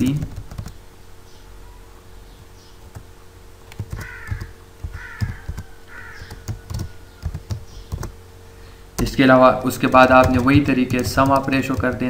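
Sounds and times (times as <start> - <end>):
keyboard keys clicking: 0.0 - 0.8, 3.7 - 8.2, 9.0 - 12.0
bird calling: 3.9 - 8.8.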